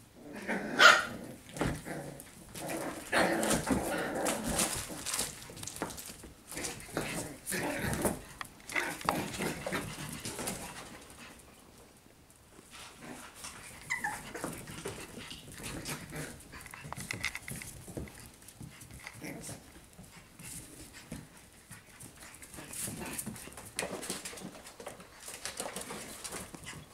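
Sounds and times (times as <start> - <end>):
paws scuffling on tile floor: 1.4 - 26.9
puppies yipping and whimpering: 13.8 - 14.4.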